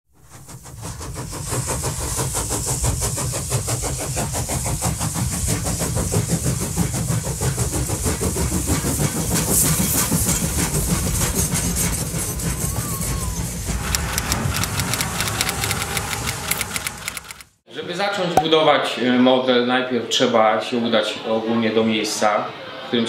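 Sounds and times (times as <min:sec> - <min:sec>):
train carriage rumble: 0:00.2 - 0:17.4
wheels clicking over rails: 0:13.7 - 0:17.6.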